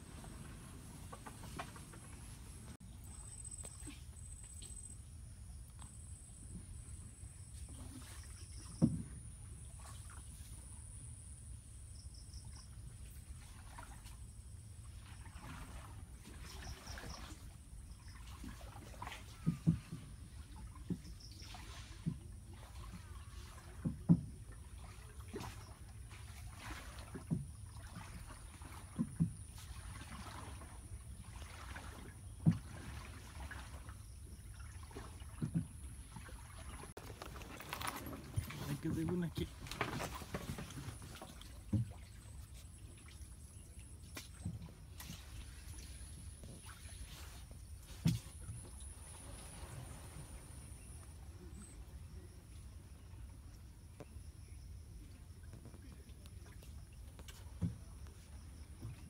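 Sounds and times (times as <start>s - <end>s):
paddle swishing water: 0.0s - 5.0s, 5.8s - 11.1s, 12.1s - 59.0s
insects droning: 0.0s - 59.0s
dull knocks on wooden hull: 8.7s - 9.2s, 19.3s - 21.2s, 23.7s - 24.5s, 32.4s - 32.8s, 35.3s - 35.8s, 39.5s - 42.1s, 47.9s - 48.6s, 57.2s - 58.0s.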